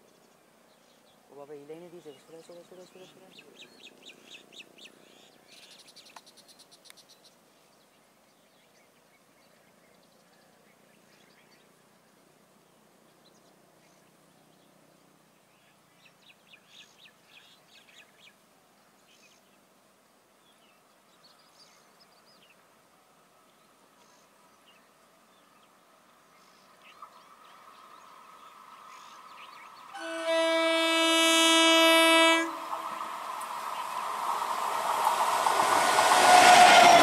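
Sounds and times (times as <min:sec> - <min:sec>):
birds chirping: 0:23.5 - 0:36.2.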